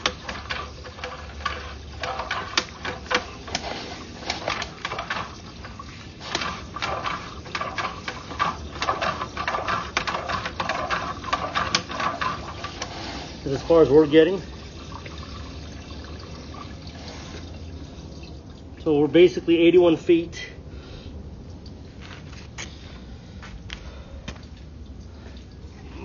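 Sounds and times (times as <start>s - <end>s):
scraping hiss: 0.0s - 13.9s.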